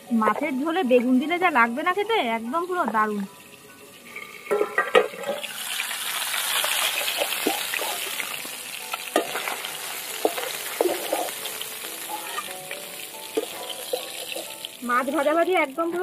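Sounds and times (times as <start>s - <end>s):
fish sizzling in oil: 0.0s - 16.0s
metal spatula scraping pan: 9.2s - 12.6s, 13.3s - 14.6s.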